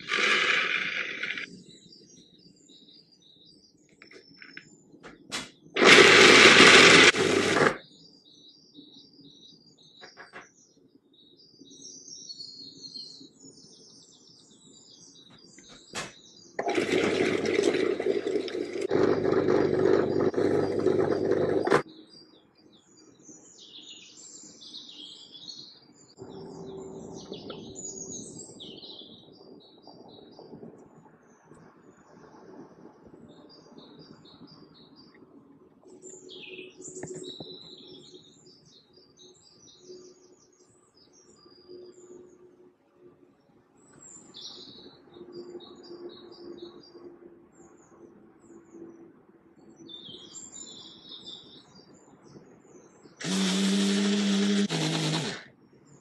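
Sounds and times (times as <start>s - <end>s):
food processor grinding: 0.0s - 1.5s, 5.8s - 7.8s, 16.6s - 21.8s, 53.2s - 55.5s
birds chirping: 14.6s - 30.7s.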